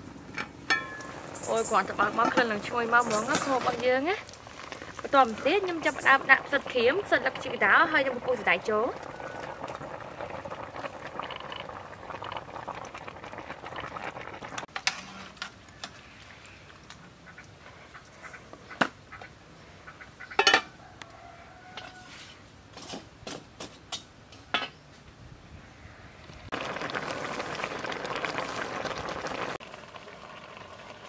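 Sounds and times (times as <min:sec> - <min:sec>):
pot simmering: 0:00.0 - 0:18.2, 0:26.2 - 0:31.0
metal lid clinks and clank: 0:00.7 - 0:01.1
dried food rustling into pot: 0:00.8 - 0:17.0, 0:26.5 - 0:29.6.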